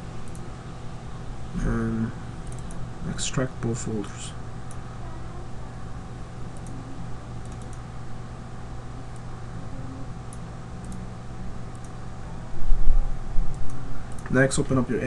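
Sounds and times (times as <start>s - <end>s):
low room hum: 0.0s - 15.0s
faint computer clicks: 2.4s - 2.8s, 7.4s - 7.9s, 11.7s - 12.0s.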